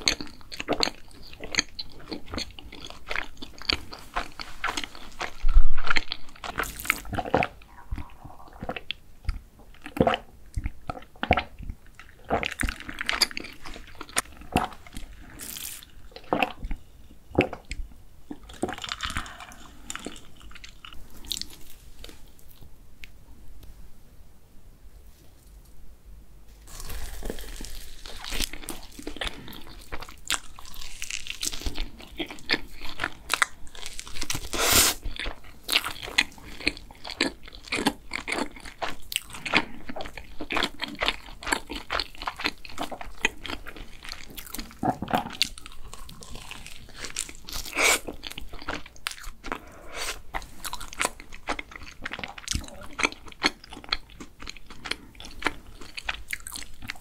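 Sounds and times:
chewing and biting: 0.0 - 16.8, 26.7 - 57.0
soft squishing: 0.0 - 23.8.

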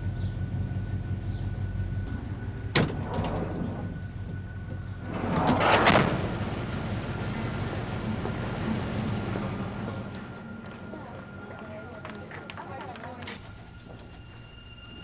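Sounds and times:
van engine idling: 0.0 - 14.0
sliding door slammed: 2.6 - 7.5.

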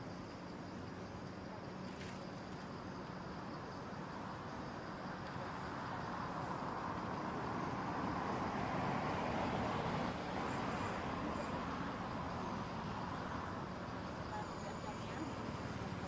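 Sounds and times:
road traffic rushing: 6.3 - 16.0.

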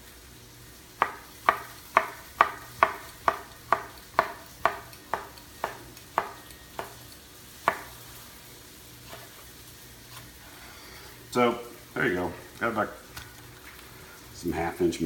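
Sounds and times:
knife slicing cucumber: 1.0 - 8.0, 9.0 - 9.5.

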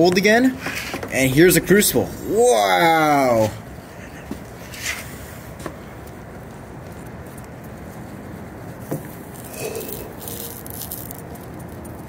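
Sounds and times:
hissing scraping pour: 9.1 - 11.8.

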